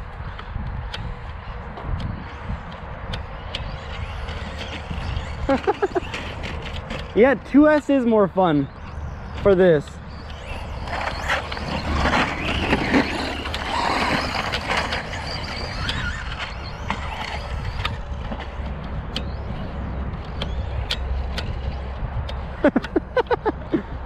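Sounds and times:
electric rc trucks running: 0.0s - 24.0s
sharp clicks: 8.7s - 23.4s.

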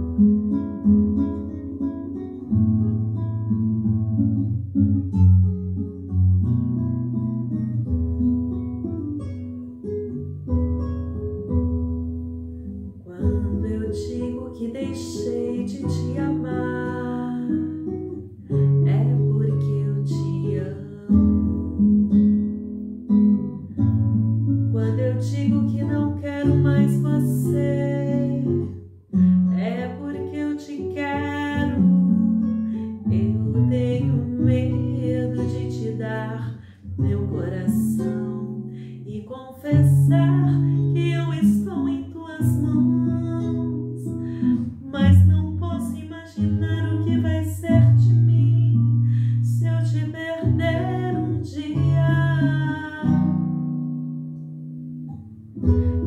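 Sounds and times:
acoustic guitar chords: 0.0s - 56.0s
bass: 0.0s - 56.0s
woman singing a ballad: 12.9s - 21.8s, 24.6s - 28.8s, 29.5s - 53.5s.

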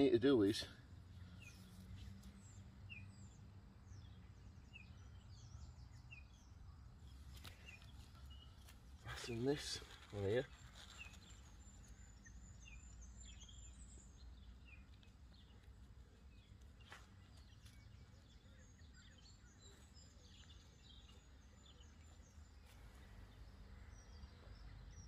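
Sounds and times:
faint birdsong: 0.0s - 25.0s.

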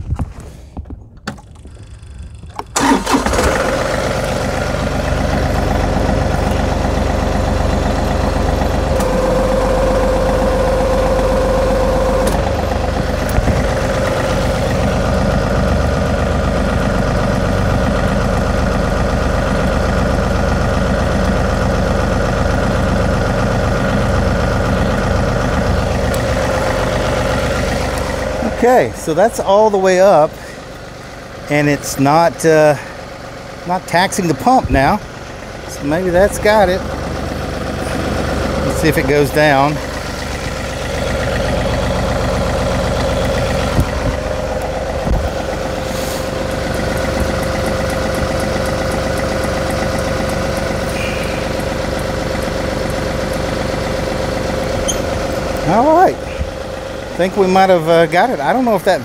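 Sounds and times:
tractor diesel engine running: 0.0s - 59.0s
hydraulic hitch lifting: 0.2s - 16.1s, 24.4s - 28.5s, 36.8s - 56.9s.

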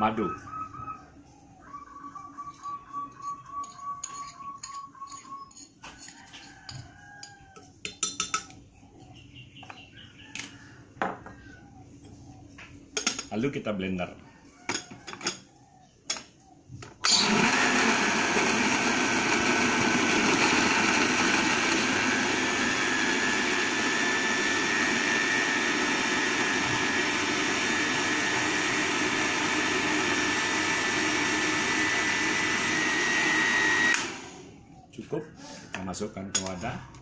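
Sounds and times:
blender motor running: 17.0s - 34.5s.

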